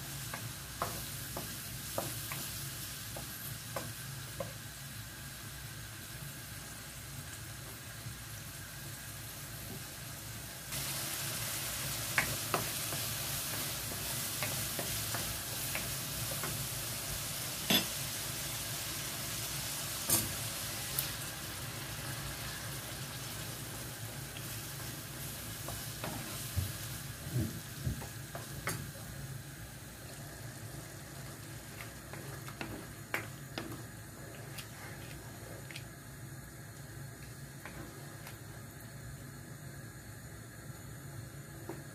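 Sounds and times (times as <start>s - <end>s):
food sizzling in frying pan: 0.0s - 41.9s
wooden spoon stirring: 30.5s - 35.8s.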